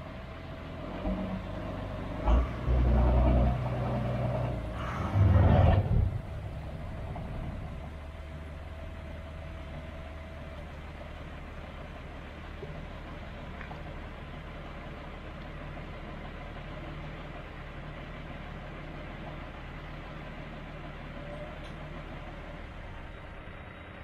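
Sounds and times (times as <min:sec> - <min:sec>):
engine idling with surges: 0:00.0 - 0:24.0.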